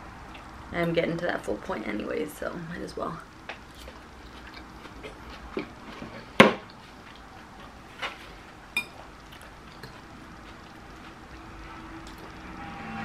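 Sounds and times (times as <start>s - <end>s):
person chewing: 3.7s - 7.8s, 9.2s - 12.4s.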